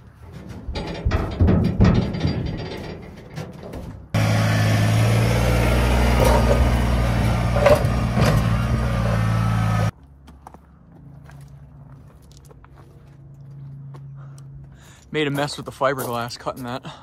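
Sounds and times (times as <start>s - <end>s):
tractor diesel engine running: 0.0s - 9.9s
knocking in metal dumpster: 0.6s - 4.0s.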